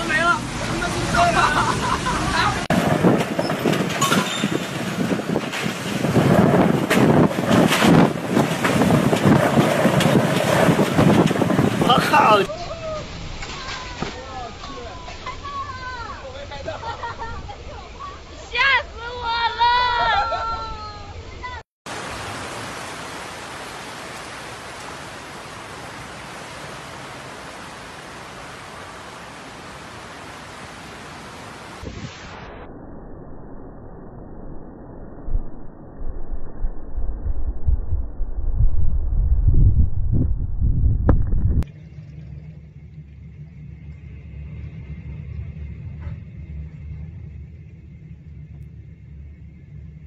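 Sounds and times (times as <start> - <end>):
floodwater rushing: 0.0 - 19.2, 21.9 - 32.0
wind buffeting microphone: 0.5 - 13.5, 36.2 - 41.7
steady low rumble: 31.7 - 50.0.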